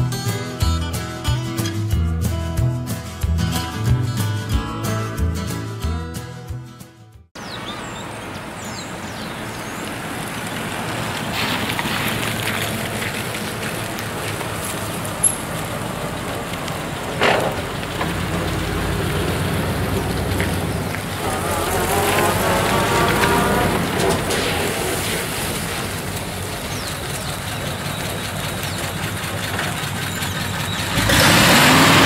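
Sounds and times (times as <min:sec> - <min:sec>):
cars driving past: 0:07.4 - 0:32.0
tyres hissing on wet road: 0:07.4 - 0:32.0.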